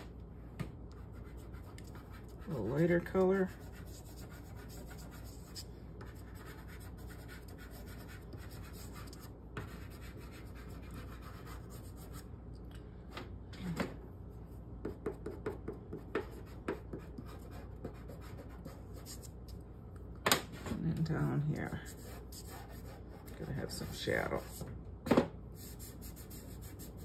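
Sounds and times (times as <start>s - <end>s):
pastel scratching on paper: 1.0s - 12.2s, 21.6s - 24.6s, 25.6s - 27.0s
fingers rubbing on paper: 1.2s - 12.1s, 25.6s - 27.0s.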